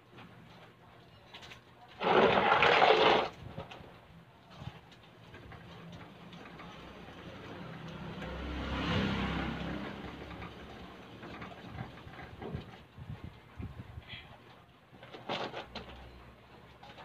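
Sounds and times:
vehicle passing by: 0:06.4 - 0:12.4.

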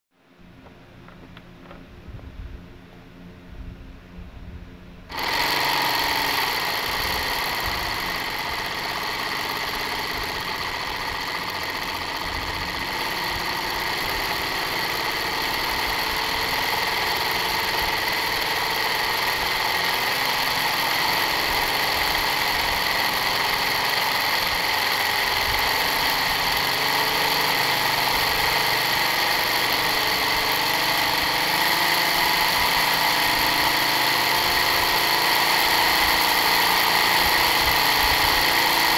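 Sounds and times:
simulated diesel engine idling: 0:05.1 - 0:38.9.

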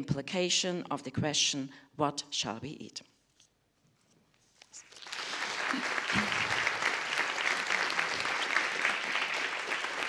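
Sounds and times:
audience applauding: 0:04.8 - 0:10.0.

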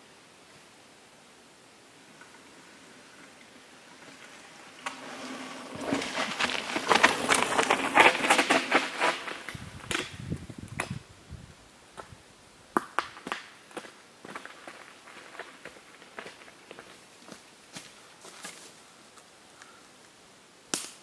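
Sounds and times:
bike tyres crunching on rock: 0:02.2 - 0:10.3, 0:12.8 - 0:18.8.

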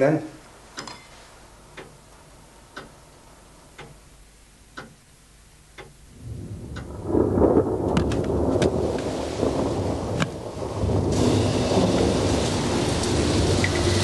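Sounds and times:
clock ticking: 0:00.7 - 0:07.0
rain: 0:06.0 - 0:14.0
thunder rumbling: 0:06.1 - 0:14.0.

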